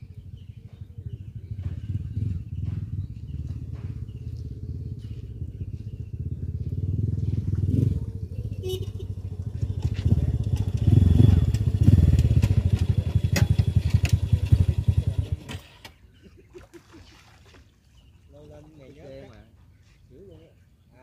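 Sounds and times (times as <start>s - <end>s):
small engine running: 8.7s - 15.9s.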